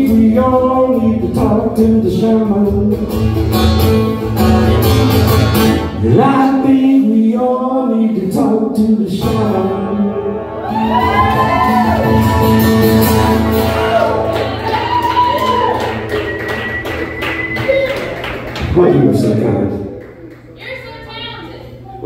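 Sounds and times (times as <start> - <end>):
acoustic guitar ringing: 0.0 - 6.7, 9.1 - 17.7.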